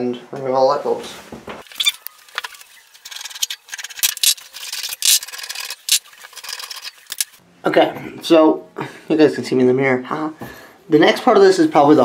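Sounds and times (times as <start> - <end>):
bulbs squeaking in sockets: 1.6 - 7.4.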